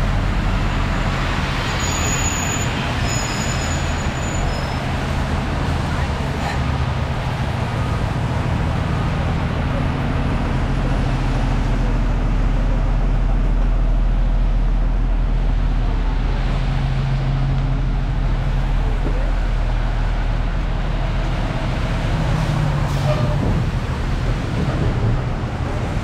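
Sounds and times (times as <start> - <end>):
vehicle engines rumbling: 0.0 - 26.0.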